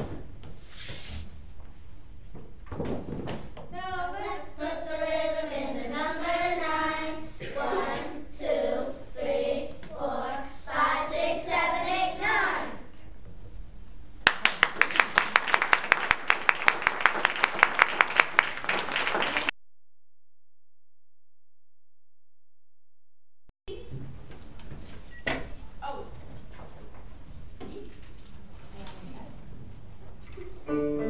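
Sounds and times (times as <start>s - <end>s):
children's choir singing: 3.9s - 12.9s
audience clapping: 14.2s - 19.5s.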